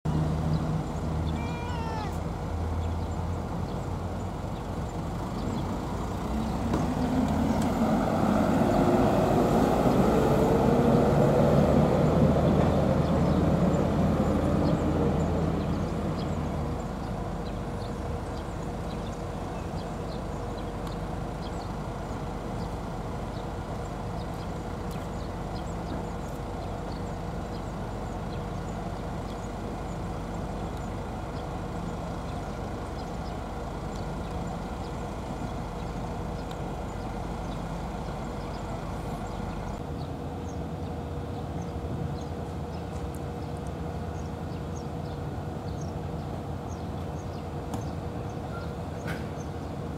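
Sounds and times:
vehicle engine revving: 5.3s - 16.8s.

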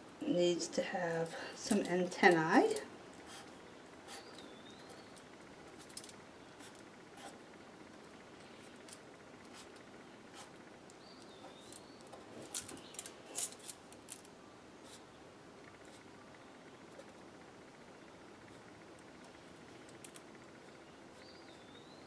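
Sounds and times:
marker scratching: 10.3s - 10.6s.

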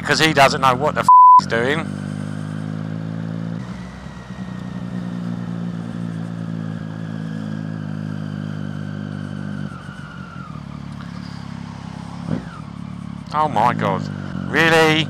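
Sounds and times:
motorcycle engine cruising: 0.0s - 15.0s.

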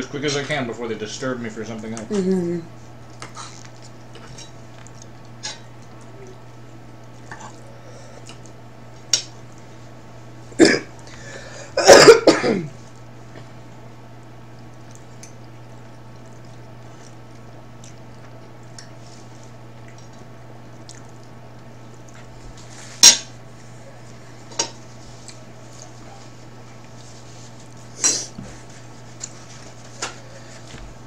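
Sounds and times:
throat clearing: 10.6s - 10.9s, 11.8s - 12.8s
woman coughing: 10.6s - 10.9s, 11.8s - 12.8s.

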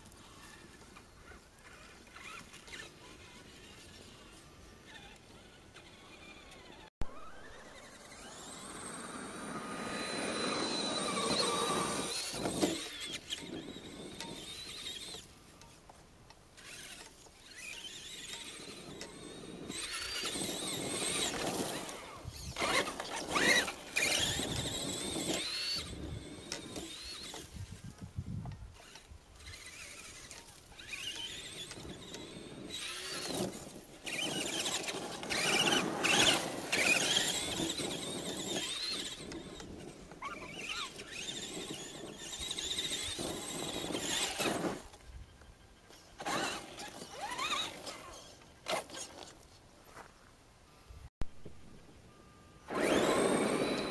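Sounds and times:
electric motor and gearbox whining: 0.0s - 50.0s, 51.5s - 53.9s.

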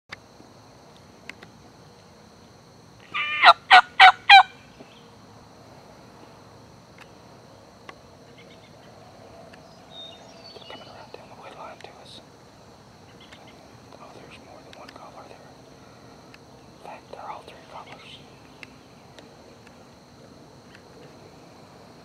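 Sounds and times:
turkey gobbling: 3.1s - 4.5s.

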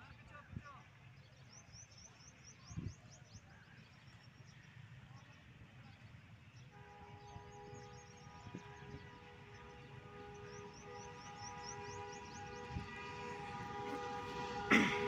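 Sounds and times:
distant locomotive horn blast: 6.6s - 15.0s.

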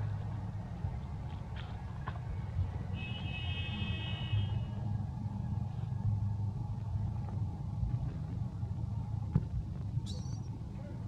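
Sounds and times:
low rumble: 4.6s - 11.0s.

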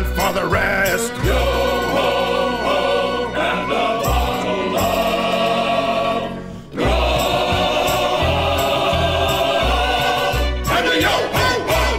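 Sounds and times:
pulsing bass: 0.0s - 11.9s
choir singing a sea shanty: 0.2s - 11.9s.

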